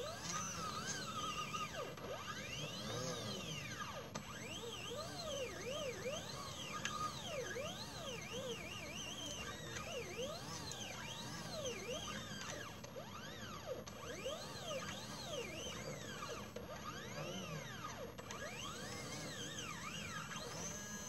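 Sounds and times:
stepper motors whining: 0.0s - 21.0s.

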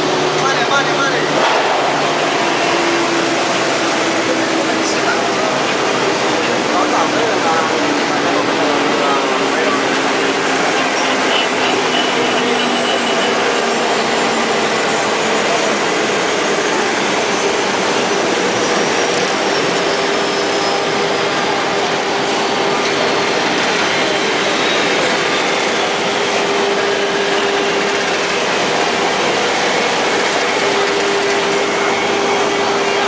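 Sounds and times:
printing machine whirring: 0.0s - 33.0s.

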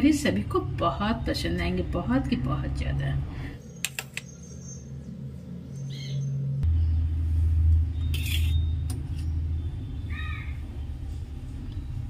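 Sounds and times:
bird chirp: 3.6s - 7.2s, 7.8s - 12.0s
low rumble: 4.3s - 12.0s.

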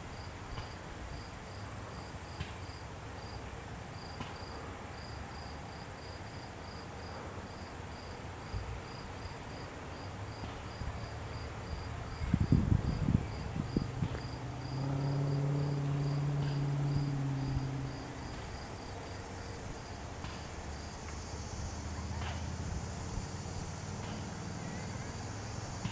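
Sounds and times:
cricket chirping: 0.1s - 25.9s
low steady hum: 11.9s - 24.0s.

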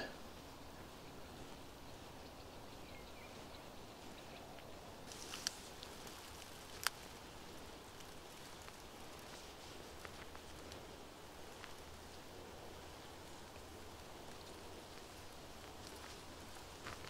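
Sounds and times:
outdoor background hiss: 0.0s - 17.0s
small ticks: 3.4s - 17.0s.

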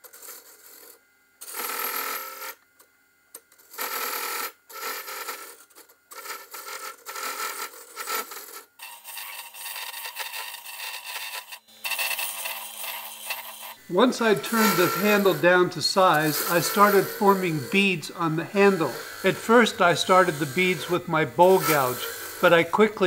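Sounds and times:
gouge cutting spinning wood: 8.0s - 23.0s.

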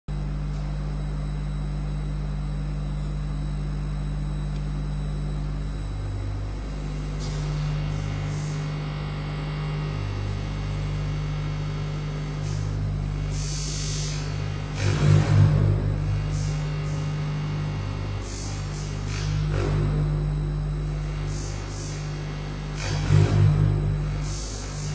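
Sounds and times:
steady low hum: 0.1s - 24.9s.

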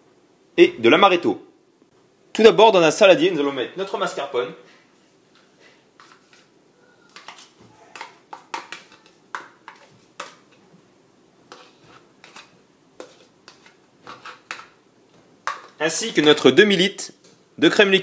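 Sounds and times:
spoon scraping plastic tub: 6.0s - 6.5s, 7.1s - 10.7s, 11.5s - 14.8s.

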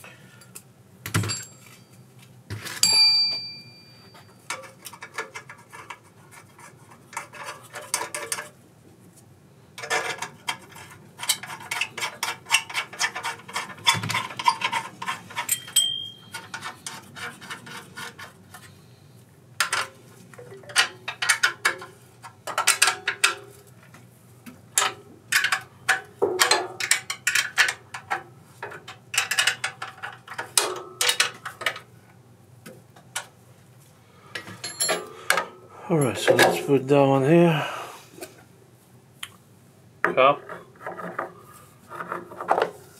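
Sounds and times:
metal parts clinking: 15.4s - 16.6s, 34.6s - 35.4s.

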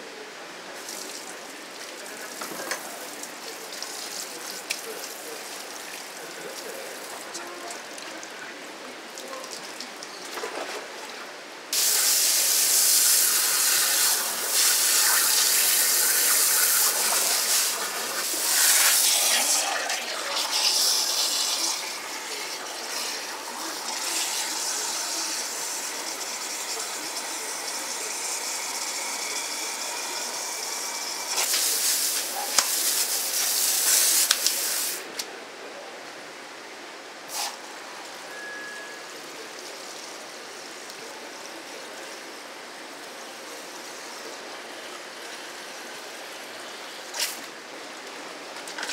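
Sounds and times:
tap water gushing: 0.7s - 8.4s, 11.7s - 35.1s.

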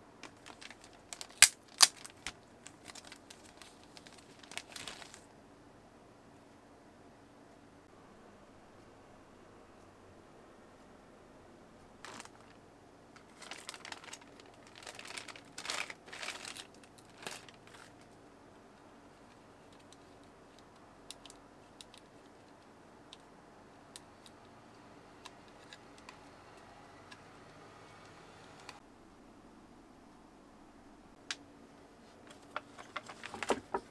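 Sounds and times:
packaging crinkling and rustling: 0.2s - 5.3s, 12.0s - 12.6s, 13.2s - 18.2s, 32.2s - 33.9s.

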